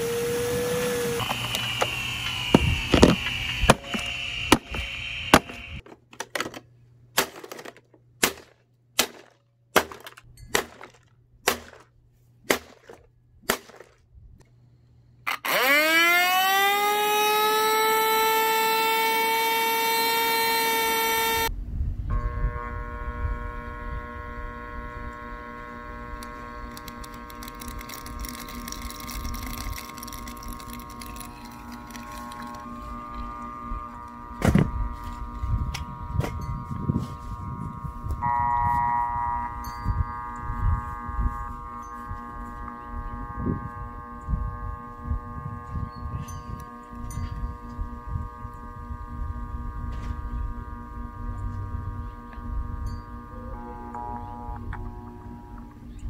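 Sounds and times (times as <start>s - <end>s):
blows on plastic housing: 0.0s - 5.8s
vacuum motor whine: 0.0s - 5.8s, 15.3s - 56.0s.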